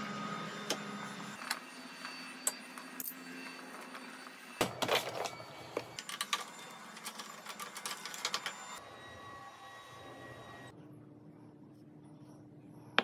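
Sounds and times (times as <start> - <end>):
steady low hum: 10.3 - 13.0.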